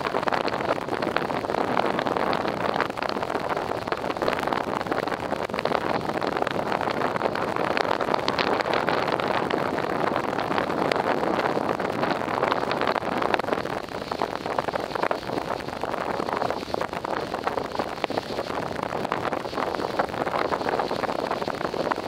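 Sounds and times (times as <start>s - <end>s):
strong wind rushing: 0.0s - 22.0s
wind crackling on microphone: 0.0s - 22.0s.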